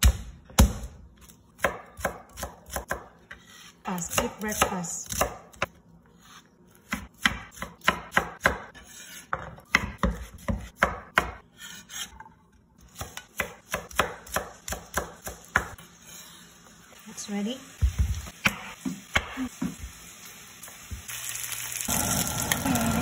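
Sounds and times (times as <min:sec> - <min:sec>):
knife chopping on wooden board: 0:01.6 - 0:05.7, 0:06.8 - 0:12.1, 0:12.9 - 0:15.8.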